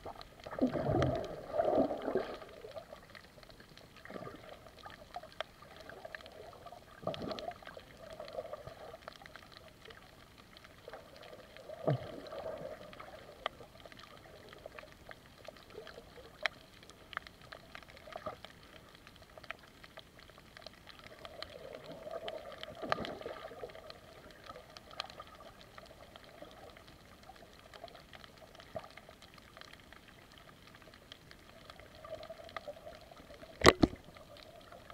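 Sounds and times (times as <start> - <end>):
underwater wash: 0.0 - 34.9.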